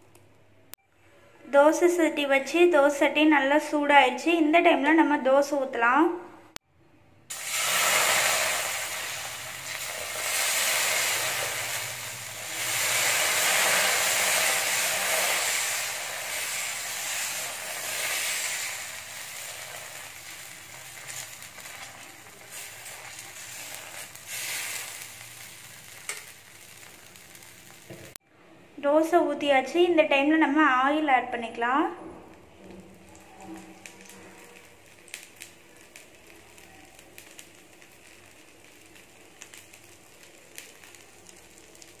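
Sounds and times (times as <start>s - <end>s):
batter sizzling on hot pan: 7.3s - 28.2s, 32.6s - 42.0s.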